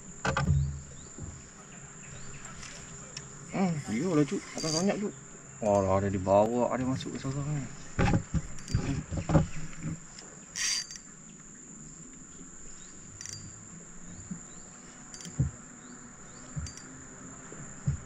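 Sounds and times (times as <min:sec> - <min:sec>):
insects droning: 0:00.0 - 0:18.0
knocks: 0:08.0 - 0:10.0, 0:17.8 - 0:18.0.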